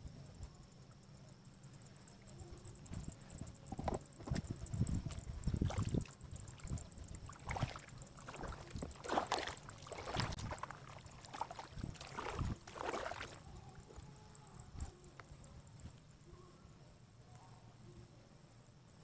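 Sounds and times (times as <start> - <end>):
paddle splashing in water: 7.3 - 13.4.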